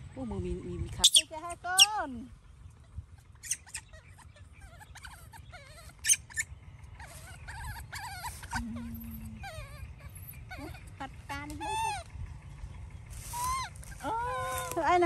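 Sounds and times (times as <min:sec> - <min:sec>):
baby monkey whimpering: 0:03.2 - 0:12.1, 0:13.2 - 0:14.8.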